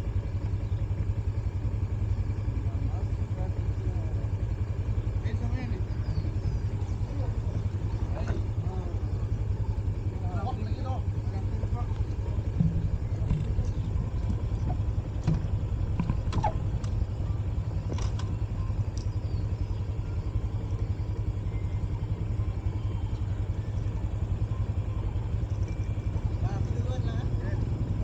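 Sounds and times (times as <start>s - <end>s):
vehicle engine rumbling: 0.0s - 28.0s
knocks and rattles: 12.4s - 17.0s.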